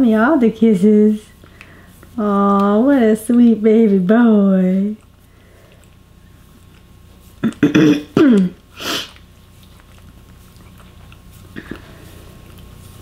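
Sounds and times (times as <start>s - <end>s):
person clearing throat: 7.4s - 9.1s.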